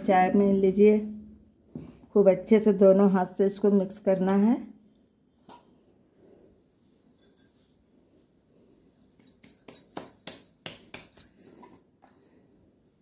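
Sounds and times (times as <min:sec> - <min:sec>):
bangles jingling: 0:07.1 - 0:07.7, 0:08.6 - 0:11.8.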